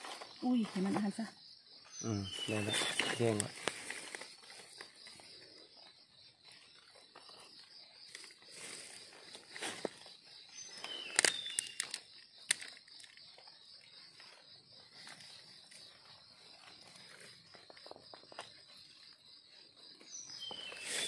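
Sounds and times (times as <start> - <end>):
insects chirring: 0.0 - 21.0
dry leaves rustling: 2.3 - 5.1
twigs snapping: 10.9 - 13.2.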